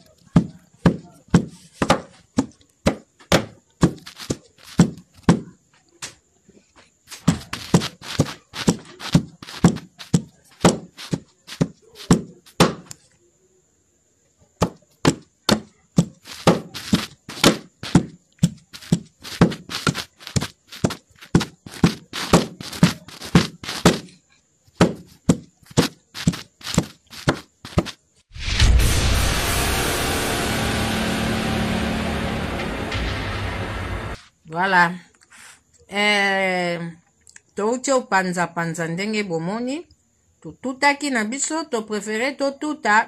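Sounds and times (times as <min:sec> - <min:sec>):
pestle pounding in wooden mortar: 0:00.3 - 0:05.5, 0:07.2 - 0:12.9, 0:14.6 - 0:24.1, 0:24.8 - 0:28.0.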